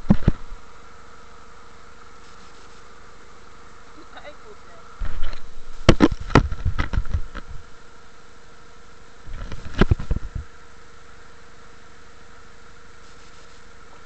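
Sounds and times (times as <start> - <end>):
microphone handling knocks and rubbing: 0.0 - 0.6, 5.0 - 7.6, 9.3 - 10.5
faint hum: 0.0 - 14.0.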